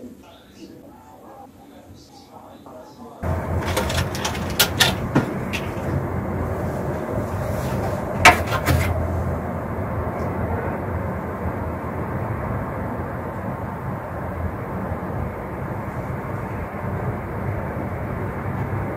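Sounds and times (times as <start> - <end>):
metal tray clattering on stone: 3.2 - 6.1, 6.8 - 9.0
low outdoor rumble: 3.2 - 18.9.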